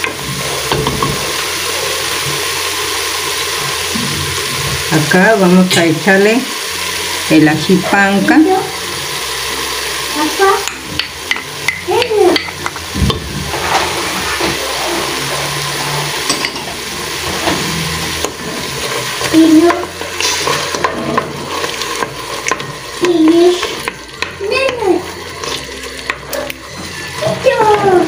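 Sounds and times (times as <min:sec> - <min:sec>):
utensil scraping and knocking pot: 0:00.0 - 0:02.5, 0:10.6 - 0:28.0
sizzling in hot oil: 0:00.0 - 0:28.0.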